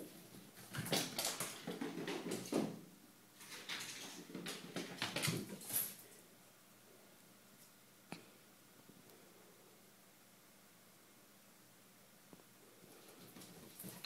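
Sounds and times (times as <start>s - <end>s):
cat claws scrabbling on tiles: 3.4s - 6.0s.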